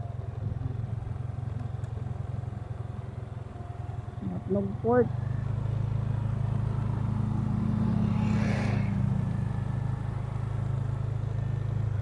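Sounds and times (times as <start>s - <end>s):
motorcycle engine running: 0.0s - 12.0s
brief rushing noise: 7.5s - 9.6s.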